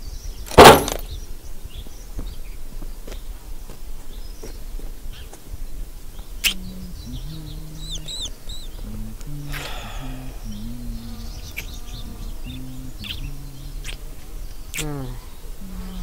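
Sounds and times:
sharp pop: 0:00.5 - 0:01.1
high chirping tweets: 0:06.1 - 0:16.0
high chirps: 0:06.4 - 0:16.0
low held music notes: 0:06.4 - 0:16.0.

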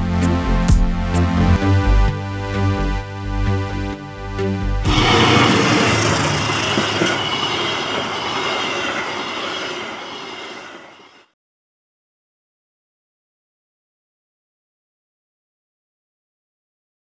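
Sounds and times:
electronic music: 0:00.1 - 0:10.5
faint high wheel squeal: 0:04.9 - 0:11.3
train rolling past: 0:04.9 - 0:11.3.

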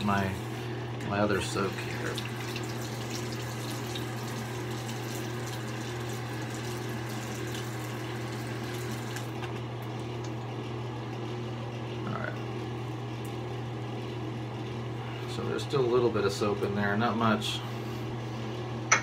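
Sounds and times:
sink tap running: 0:00.0 - 0:10.5
steady low hum: 0:05.5 - 0:19.0.

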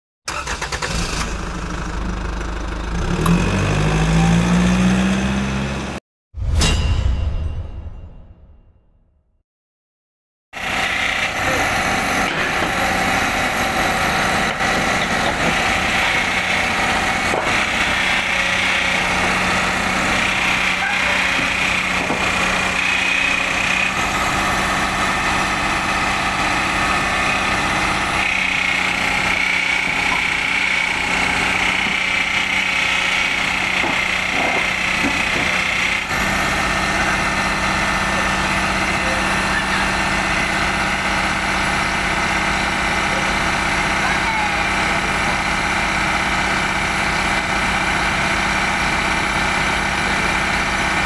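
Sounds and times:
excavator diesel engine running: 0:00.3 - 0:06.0, 0:10.6 - 0:51.0
hydraulic pump growling: 0:10.6 - 0:51.0.

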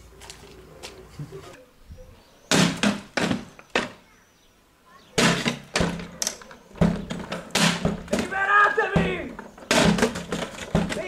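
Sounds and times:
sharp knocks and thuds: 0:02.5 - 0:04.0, 0:05.2 - 0:06.2, 0:06.8 - 0:11.0.

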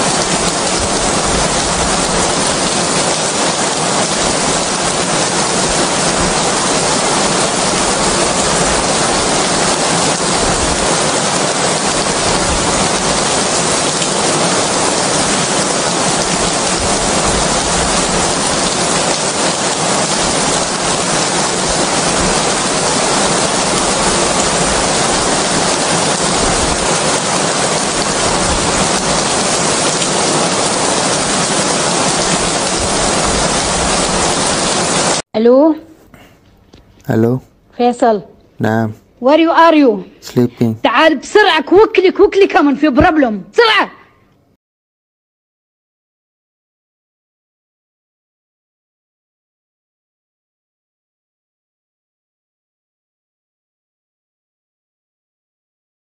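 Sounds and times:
steady rain hiss: 0:00.0 - 0:35.2, 0:36.2 - 0:42.4.

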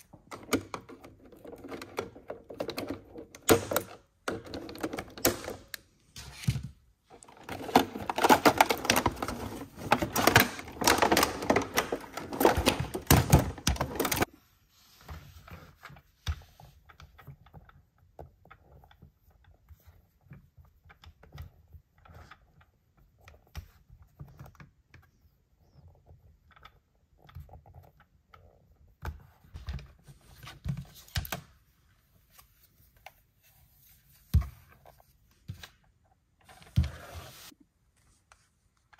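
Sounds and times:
plastic packaging crinkling: 0:07.1 - 0:14.3.

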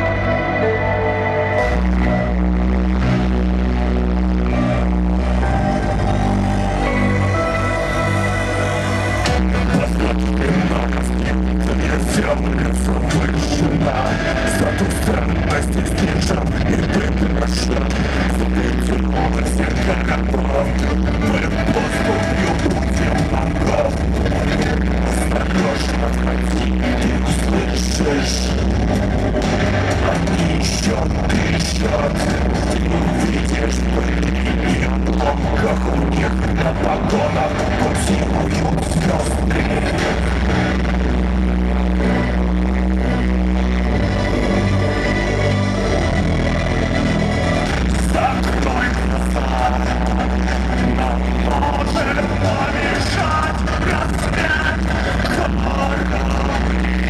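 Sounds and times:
guitar: 0:00.0 - 0:57.0
live electronic rock band: 0:00.0 - 0:57.0
low bass: 0:00.0 - 0:57.0
synthesizer: 0:00.0 - 0:57.0
man singing into a microphone: 0:09.0 - 0:28.7, 0:29.8 - 0:41.2, 0:47.6 - 0:57.0.

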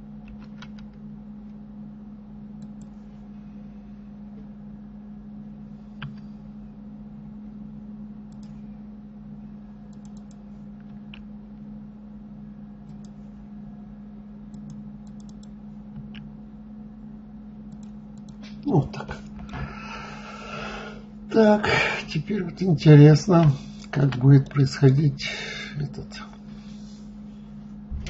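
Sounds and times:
low electrical hum: 0:00.0 - 0:28.0
keyboard and mouse clicks: 0:08.3 - 0:08.6, 0:09.9 - 0:11.3, 0:12.9 - 0:13.2, 0:14.5 - 0:16.2, 0:17.7 - 0:18.6.

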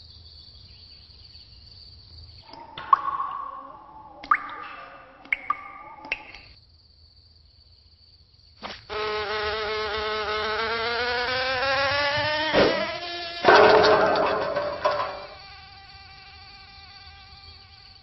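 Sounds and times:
insect wings buzzing: 0:08.6 - 0:18.0.

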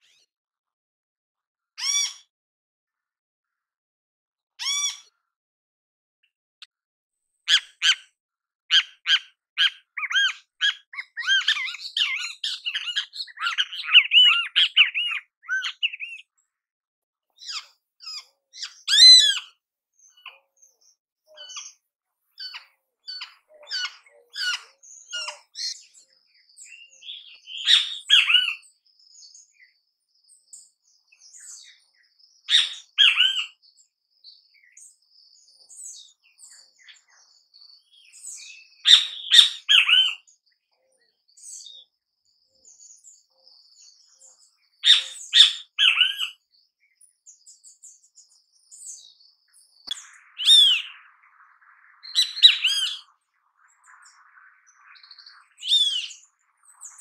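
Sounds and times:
high bird chirps: 0:08.7 - 0:16.3, 0:17.4 - 0:21.8, 0:22.4 - 0:40.3, 0:42.8 - 0:57.0.

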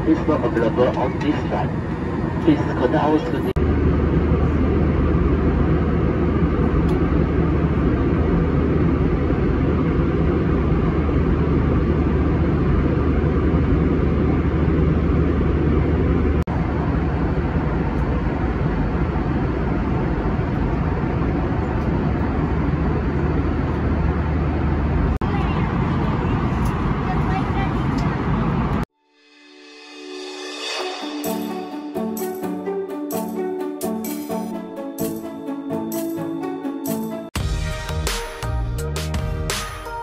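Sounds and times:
jet airliner cabin roar: 0:00.0 - 0:28.9
low hum: 0:00.0 - 0:35.8.

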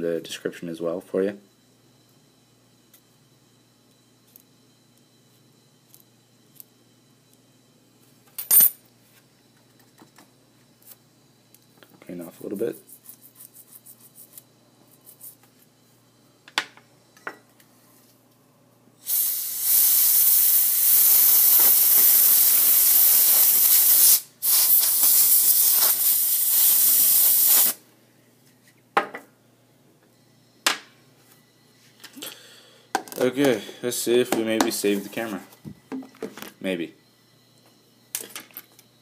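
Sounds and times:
compressed air spray hiss: 0:19.0 - 0:27.8.

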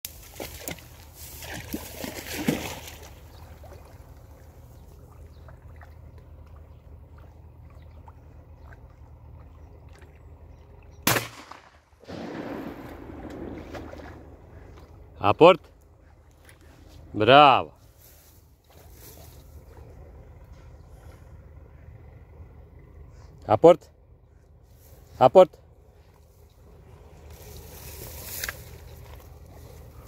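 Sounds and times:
water splashing: 0:00.1 - 0:10.4, 0:11.1 - 0:15.0
dog paddling in water: 0:00.1 - 0:10.8
loud sharp bang: 0:11.1 - 0:14.1.

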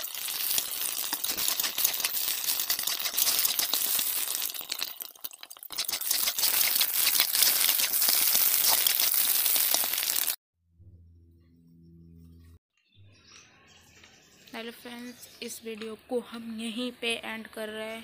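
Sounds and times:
egg sizzling in hot oil: 0:00.0 - 0:10.4.

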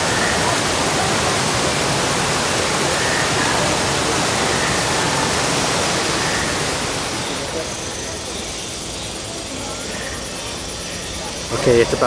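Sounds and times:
waterfall splashing into pool: 0:00.0 - 0:07.7.

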